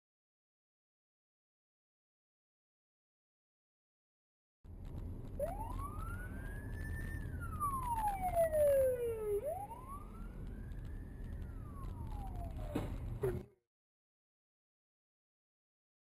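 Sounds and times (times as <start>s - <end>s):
road and engine noise: 4.7s - 13.6s
police siren wailing: 5.3s - 13.4s.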